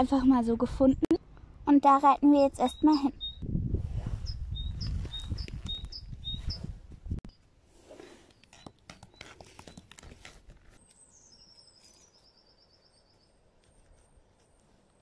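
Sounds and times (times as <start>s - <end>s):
songbird trilling: 2.6s - 3.4s, 4.3s - 6.6s.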